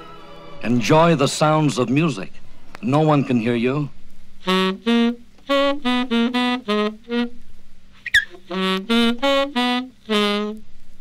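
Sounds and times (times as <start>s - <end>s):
wind instrument playing a tune: 4.4s - 7.4s, 8.0s - 10.7s.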